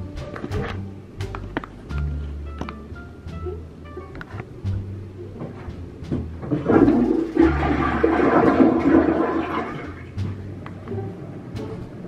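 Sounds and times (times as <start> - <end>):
toilet flushing: 6.4 - 10.2.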